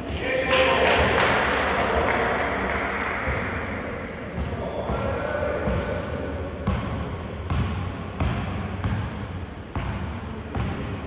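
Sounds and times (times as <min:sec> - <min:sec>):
basketball bouncing on court: 0:04.3 - 0:11.0.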